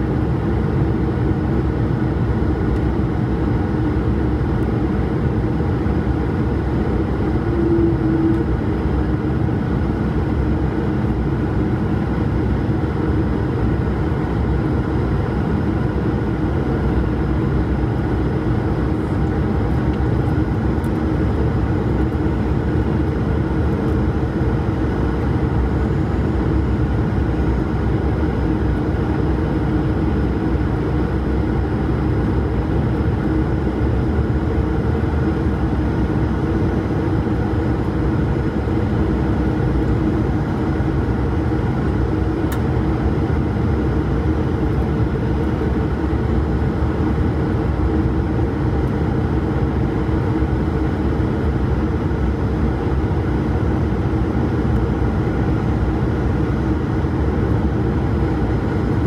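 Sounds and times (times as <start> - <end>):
constant low hum: 0.0 - 59.0
jet engine running: 0.0 - 59.0.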